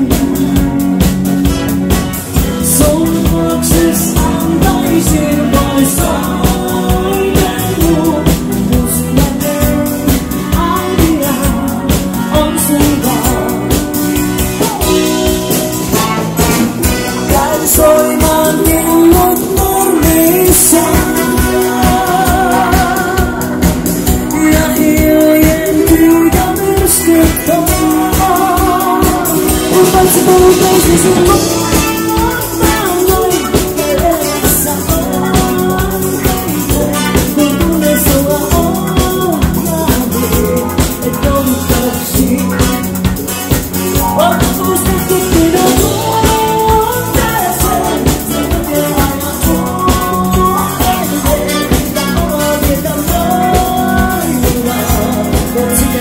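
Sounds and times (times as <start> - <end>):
woman singing: 0.0 - 1.4, 2.2 - 56.0
bass guitar: 0.0 - 56.0
drum kit beat: 0.0 - 56.0
keyboards: 0.0 - 56.0.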